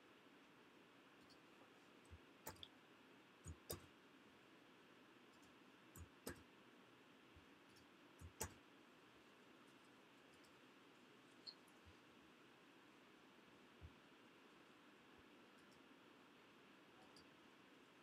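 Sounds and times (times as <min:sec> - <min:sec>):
computer mouse clicks: 0:01.2 - 0:01.4, 0:02.1 - 0:02.8, 0:03.4 - 0:03.9, 0:05.3 - 0:06.5, 0:07.7 - 0:08.6, 0:09.8 - 0:10.6, 0:15.5 - 0:15.9, 0:17.0 - 0:17.4.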